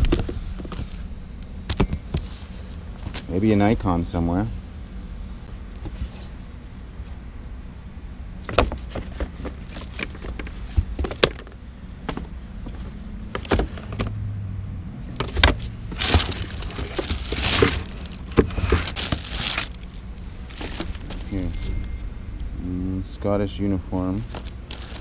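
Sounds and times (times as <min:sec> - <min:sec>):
packing paper rustling: 0:15.2 - 0:22.1, 0:24.2 - 0:25.0.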